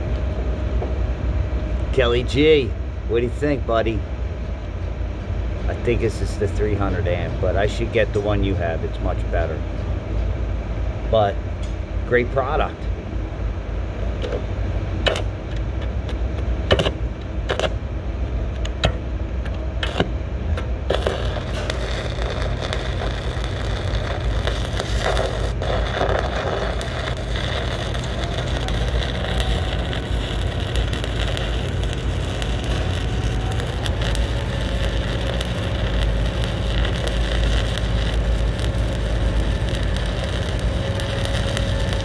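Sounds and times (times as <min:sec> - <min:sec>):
welding arc crackling: 0:15.1 - 0:18.0, 0:18.6 - 0:42.0.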